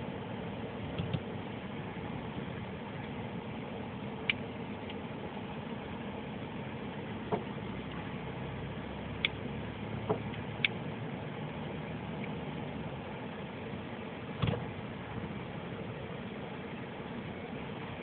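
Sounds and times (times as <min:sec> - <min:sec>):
car engine and road noise: 0:00.0 - 0:18.0.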